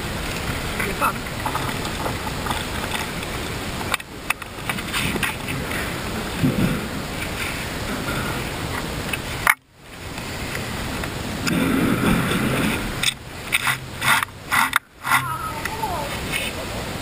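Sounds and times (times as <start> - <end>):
mechanical clicks knocks and scrapes: 13.0 - 15.2.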